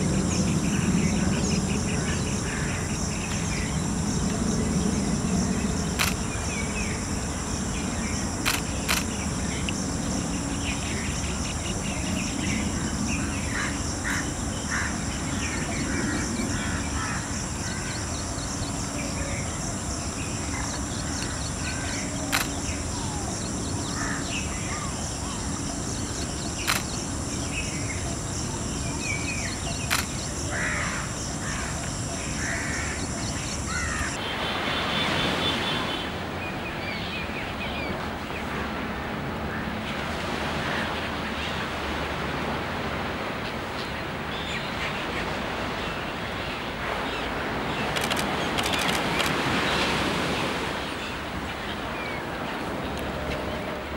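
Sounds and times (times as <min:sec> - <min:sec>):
high-pitched insect drone: 0:00.0 - 0:34.3
sharp clicks: 0:29.9 - 0:30.2.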